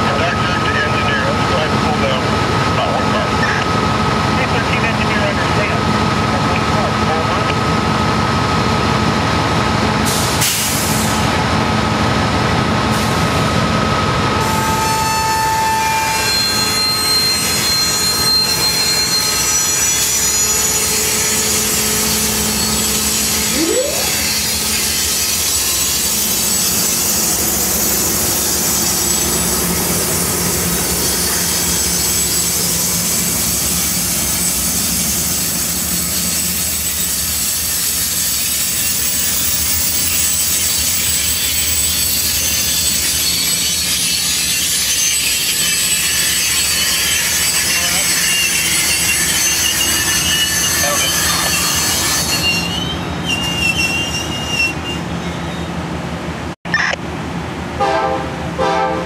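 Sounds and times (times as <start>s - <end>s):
train wheels on rails: 0.0s - 57.8s.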